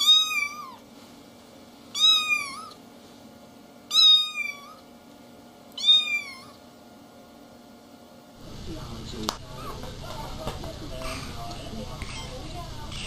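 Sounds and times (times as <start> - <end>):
kitten mewing: 2.0 - 2.8, 3.9 - 4.8, 5.8 - 6.6.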